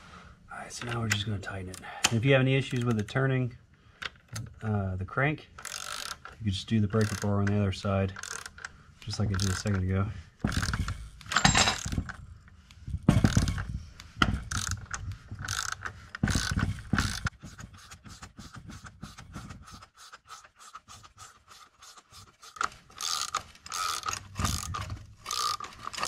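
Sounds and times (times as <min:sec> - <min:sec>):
socket ratchet clicking: 0:05.6 - 0:09.8, 0:10.5 - 0:12.0, 0:13.2 - 0:17.3, 0:22.6 - 0:26.0.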